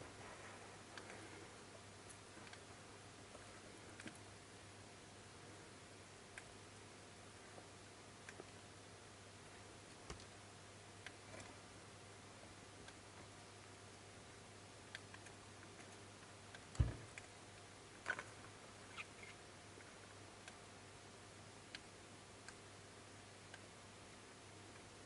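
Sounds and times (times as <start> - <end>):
low steady hum: 0.0 - 25.0
faint clicks and taps: 0.2 - 4.3, 7.5 - 8.6, 9.9 - 10.4, 14.9 - 18.3
thump: 16.8 - 17.1.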